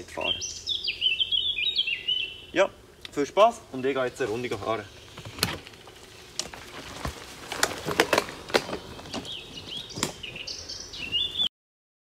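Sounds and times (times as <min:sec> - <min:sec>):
bird singing: 0:00.0 - 0:06.1, 0:07.6 - 0:11.5
bike clicks and cracks: 0:05.2 - 0:09.3.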